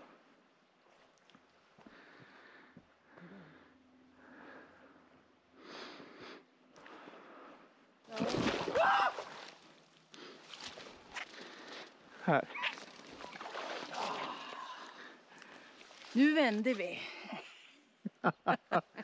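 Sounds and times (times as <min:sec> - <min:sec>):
wordless human vocal sound: 0:13.8 - 0:15.2.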